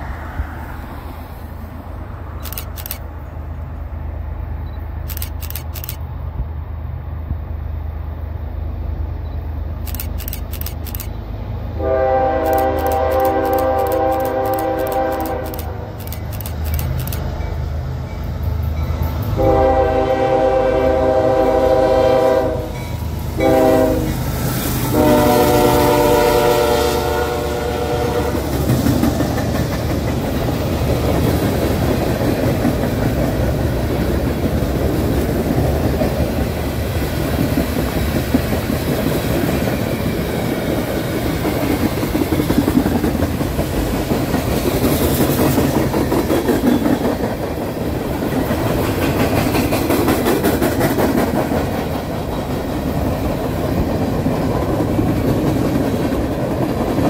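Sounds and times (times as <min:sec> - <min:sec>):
freight cars rumbling on rails: 0:00.0 - 0:57.0
train air horn blasts: 0:11.8 - 0:15.9, 0:19.4 - 0:22.8, 0:23.4 - 0:24.2, 0:24.9 - 0:28.5.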